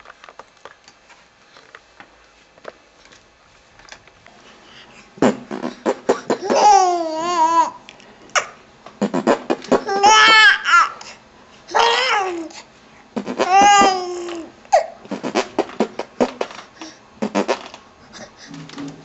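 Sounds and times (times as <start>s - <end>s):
baby laughing: 5.9s - 7.8s, 9.6s - 11.0s, 13.3s - 15.4s.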